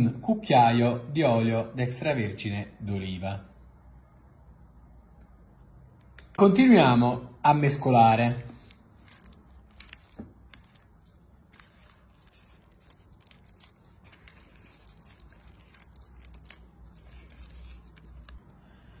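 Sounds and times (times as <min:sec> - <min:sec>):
spatula stirring wet dough: 0:08.1 - 0:18.5.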